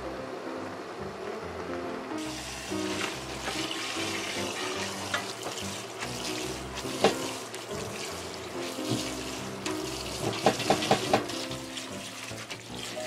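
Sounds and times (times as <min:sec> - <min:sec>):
tap water running: 0:02.2 - 0:13.0
hand squeezing noodles: 0:02.3 - 0:13.0.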